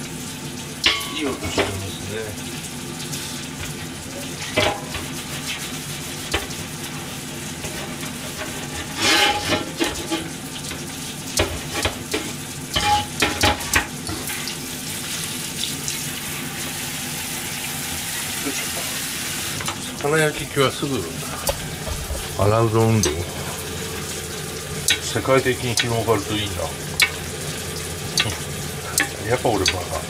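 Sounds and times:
chicken wings sizzling in a pan: 0:00.0 - 0:30.0
metal items clattering in a sink: 0:00.8 - 0:02.0, 0:03.5 - 0:14.5, 0:19.6 - 0:30.0.

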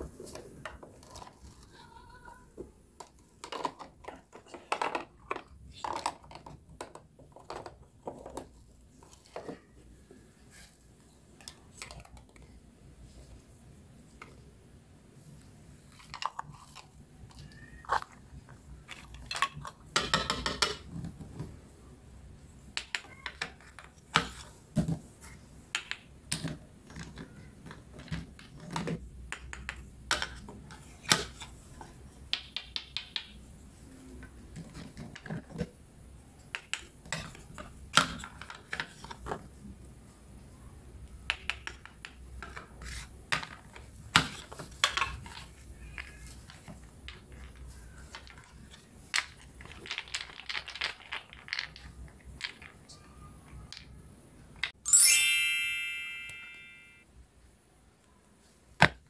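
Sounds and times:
plastic toy pieces clicking: 0:49.2 - 0:52.8.

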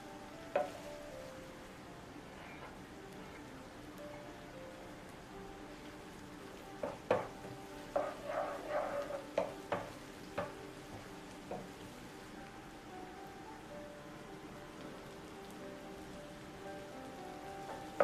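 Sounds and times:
food sizzling in a frying pan: 0:00.0 - 0:18.0
spatula knocking and scraping pan: 0:00.6 - 0:00.8, 0:06.8 - 0:11.8.

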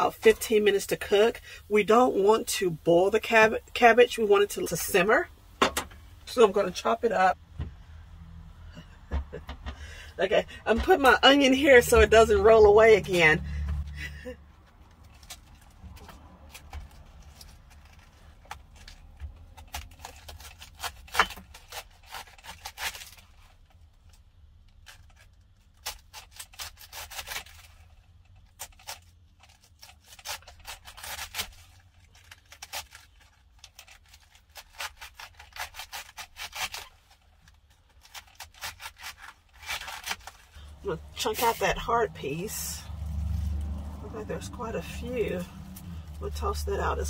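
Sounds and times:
knife cutting cabbage: 0:15.0 - 0:23.7, 0:24.8 - 0:47.0.

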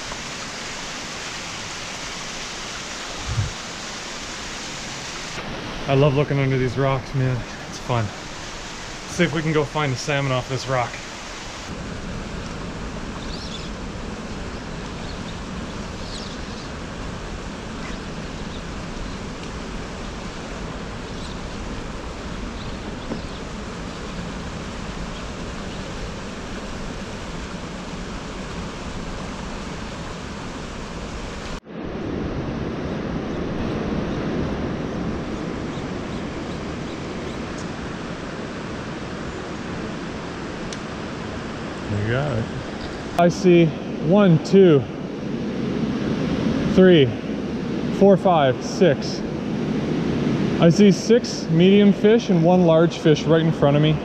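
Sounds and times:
river rushing over rock: 0:00.0 - 0:31.6.

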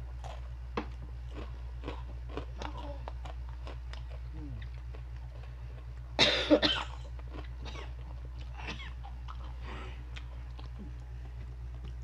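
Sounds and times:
chewing crunchy food: 0:00.0 - 0:06.2, 0:06.8 - 0:12.0
steady low hum: 0:00.0 - 0:12.0
person coughing: 0:06.2 - 0:07.0, 0:07.6 - 0:08.0, 0:08.6 - 0:09.0.

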